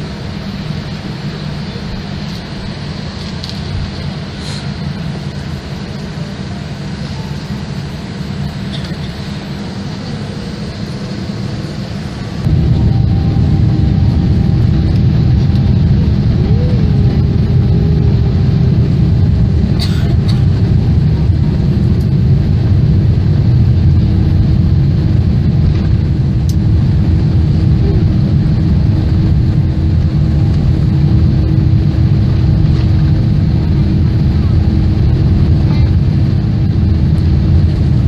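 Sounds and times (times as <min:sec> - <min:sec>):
faint steady hum: 0:00.0 - 0:38.0
jet engines rumbling: 0:00.0 - 0:38.0.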